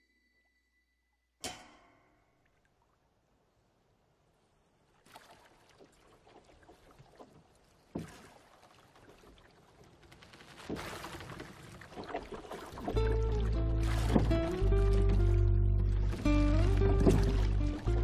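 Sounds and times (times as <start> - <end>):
water lapping against boat: 5.0 - 18.0
wooden boat knocking: 12.1 - 18.0
film score music: 12.8 - 18.0.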